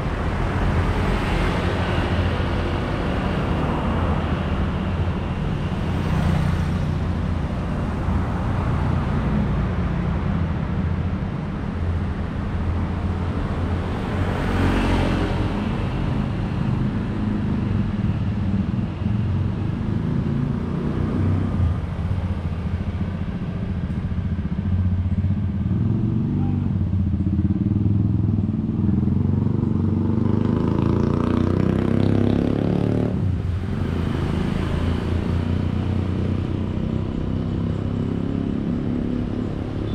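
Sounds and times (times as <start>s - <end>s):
road traffic passing: 0.0s - 39.9s
motorcycle passing close: 24.5s - 39.9s.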